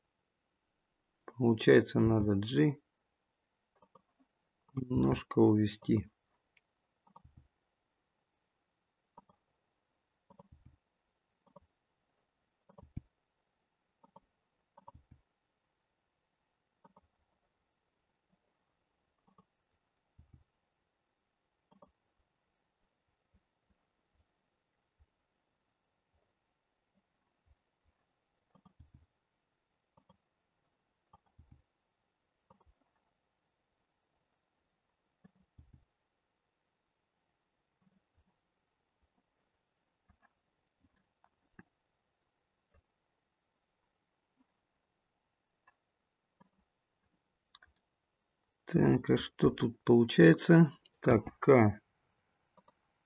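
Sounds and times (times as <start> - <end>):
computer mouse clicks: 3.8 - 4.1, 6.5 - 7.4, 9.1 - 9.5, 10.2 - 10.7, 11.4 - 11.7, 12.6 - 13.1, 14.0 - 15.2, 16.8 - 17.1, 19.2 - 19.6, 21.7 - 22.0, 28.5 - 29.0, 29.9 - 30.2, 31.1 - 31.6, 32.4 - 33.0, 35.2 - 35.8, 46.4 - 46.7, 52.5 - 52.8.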